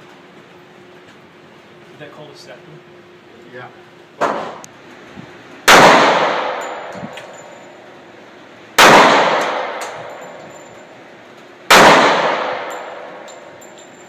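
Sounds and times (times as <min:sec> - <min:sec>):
handgun shots echoing indoors: 0:04.2 - 0:04.6, 0:05.7 - 0:07.3, 0:08.8 - 0:10.4, 0:11.7 - 0:13.6.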